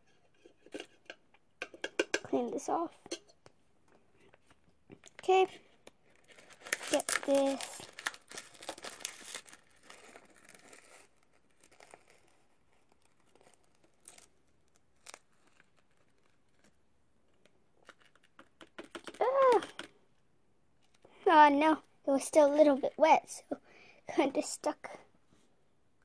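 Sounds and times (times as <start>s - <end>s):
crinkly rustling: 4.1s - 19.8s.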